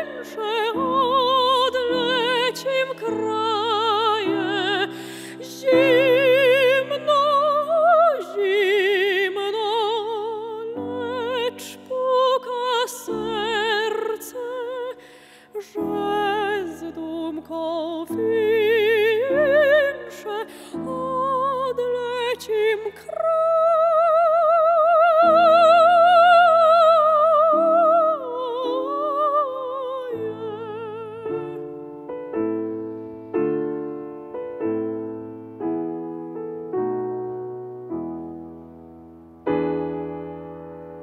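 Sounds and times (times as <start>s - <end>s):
soprano singing with vibrato: 0.0s - 31.9s
grand piano chords: 24.0s - 41.0s.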